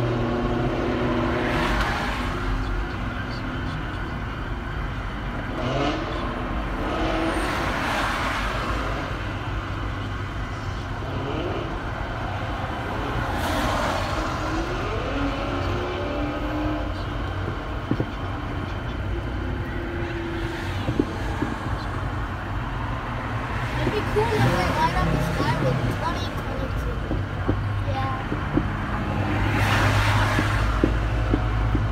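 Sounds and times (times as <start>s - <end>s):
traffic rumble: 0.0s - 31.9s
distant fireworks pops: 17.8s - 18.2s.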